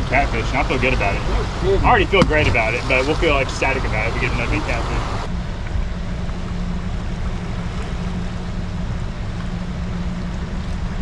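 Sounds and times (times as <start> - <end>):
fast river water rushing: 0.0 - 5.3.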